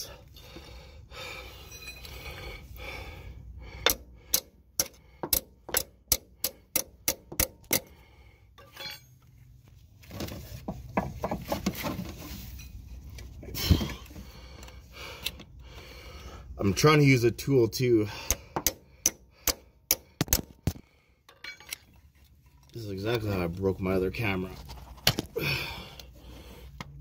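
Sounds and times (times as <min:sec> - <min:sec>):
metal clinks and scrapes: 0:01.5 - 0:02.3, 0:08.6 - 0:09.6, 0:11.2 - 0:13.4, 0:21.2 - 0:23.4
pry bar tapping metal: 0:03.8 - 0:07.9, 0:18.2 - 0:20.4.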